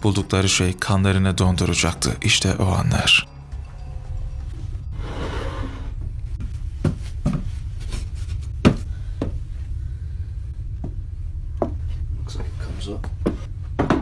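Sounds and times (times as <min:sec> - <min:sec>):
steady low rumble: 0:05.8 - 0:14.0
wooden floorboard knocks: 0:13.2 - 0:14.0.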